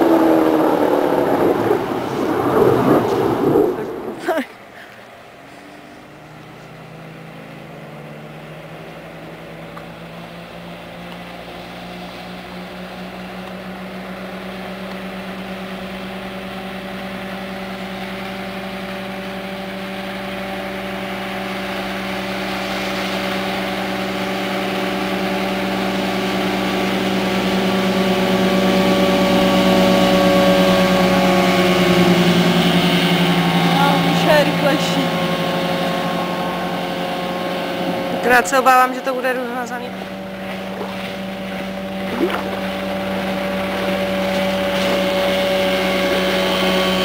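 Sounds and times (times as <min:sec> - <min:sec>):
motorboat engine running: 0:00.0 - 0:47.0
hull hissing through water: 0:21.1 - 0:26.3, 0:39.9 - 0:46.8.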